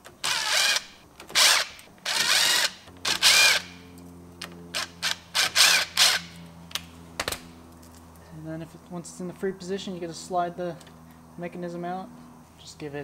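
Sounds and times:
cordless driver spinning out bolts: 0:00.1 - 0:03.8, 0:04.8 - 0:06.4.

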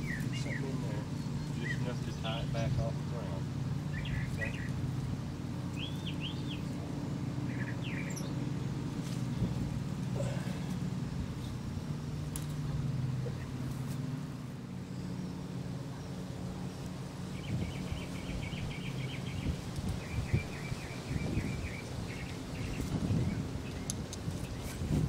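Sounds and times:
low motor hum: 0:00.0 - 0:25.0
bird trilling: 0:03.8 - 0:04.8, 0:07.4 - 0:08.5
light rustling: 0:08.9 - 0:14.5.

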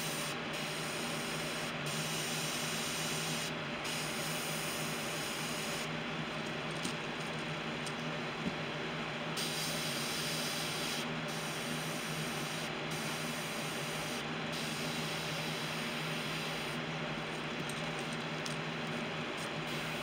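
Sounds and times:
airbrush hissing: 0:09.4 - 0:16.8.

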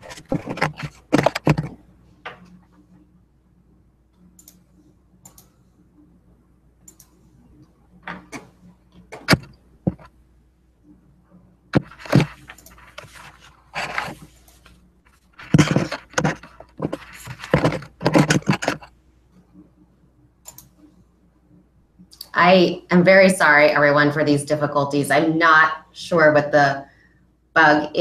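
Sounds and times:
rustling and clattering handling: 0:00.0 - 0:02.8, 0:11.8 - 0:18.9
sharp clicks: 0:20.5 - 0:20.7.

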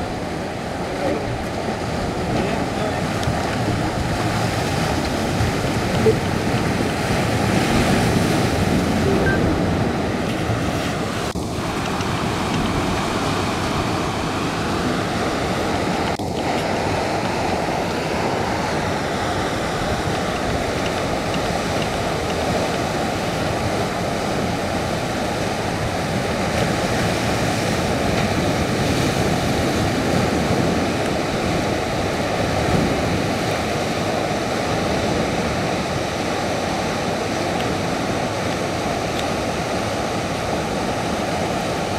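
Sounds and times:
waves breaking on rocks: 0:00.0 - 0:41.9.

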